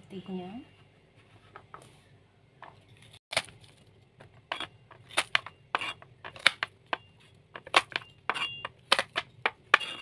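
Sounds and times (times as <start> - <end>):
knife scraping: 4.5 - 6.1, 8.3 - 8.7, 9.7 - 10.0.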